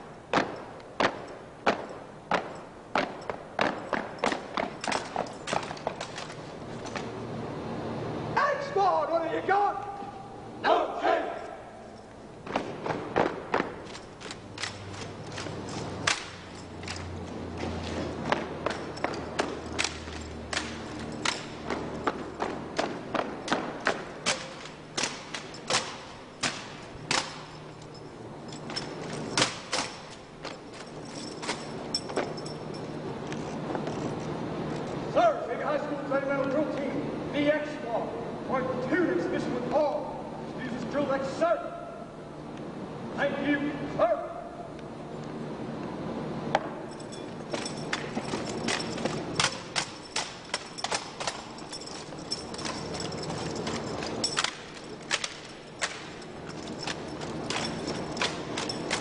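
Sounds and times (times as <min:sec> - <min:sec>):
rifle butts hitting pavement: 0:00.3 - 0:07.2, 0:12.4 - 0:27.6
hands slapping rifles: 0:12.5 - 0:17.2.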